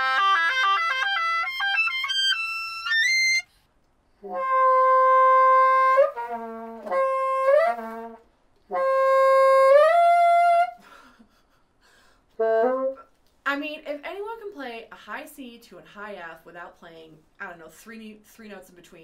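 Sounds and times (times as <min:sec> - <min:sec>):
bassoon playing: 0:00.0 - 0:03.5, 0:04.2 - 0:10.8, 0:12.4 - 0:13.1.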